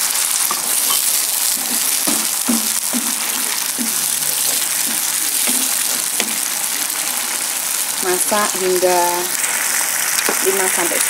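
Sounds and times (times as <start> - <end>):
sauce sizzling in a pan: 0.0 - 11.0
wooden spatula stirring: 0.3 - 6.5.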